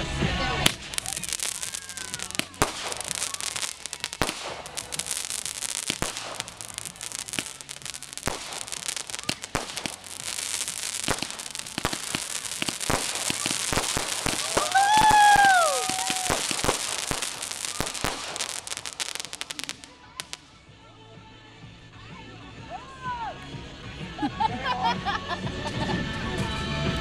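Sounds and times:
firework hissing and crackling: 0.0 - 20.8
firework sharp pops: 0.6 - 20.6.

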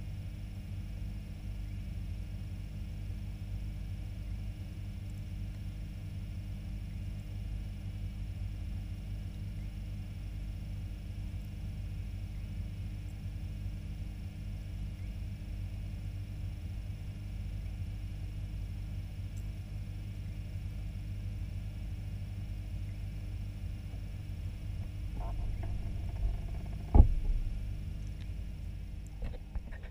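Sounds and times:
aquarium pump hum: 0.0 - 29.9
sharp knock: 26.7 - 27.6.

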